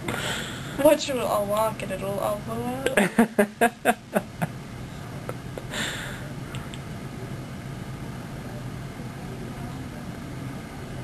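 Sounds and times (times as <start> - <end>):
breathy burst: 0.0 - 0.8, 5.7 - 6.3
steady room hum: 0.0 - 11.0
person laughing: 2.9 - 4.5.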